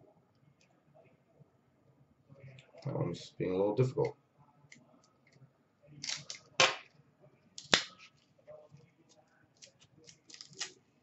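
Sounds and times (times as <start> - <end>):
plastic card packaging clicks: 9.6 - 10.8.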